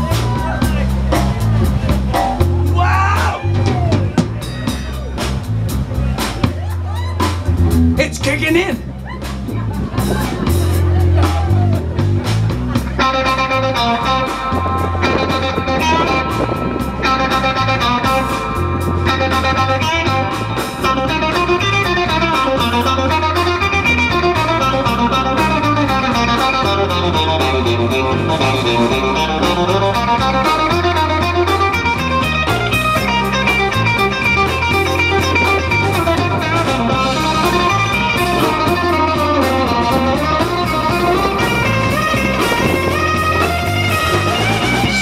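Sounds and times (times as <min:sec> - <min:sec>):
bass guitar line: 0:00.0 - 0:45.0
drum kit: 0:00.0 - 0:45.0
electric guitar lead: 0:00.0 - 0:45.0.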